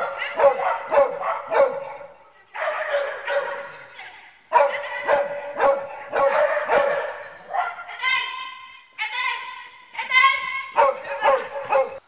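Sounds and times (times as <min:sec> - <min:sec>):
dog barking: 0:00.0 - 0:08.0, 0:10.4 - 0:12.0.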